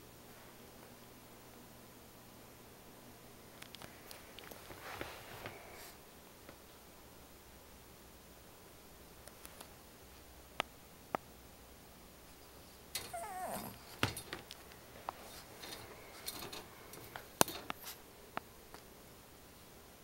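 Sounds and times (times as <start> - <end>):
puppy whining: 13.0 - 14.0
clicks and knocks: 13.9 - 14.6, 15.6 - 17.8.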